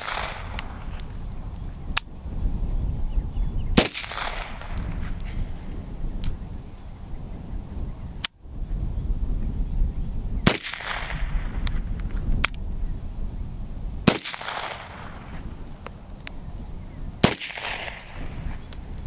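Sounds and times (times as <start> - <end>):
pistol shots with echo: 0.0 - 1.0, 3.8 - 5.2, 10.4 - 11.5, 14.0 - 15.4, 17.2 - 18.5
sharp clicks: 10.5 - 12.6.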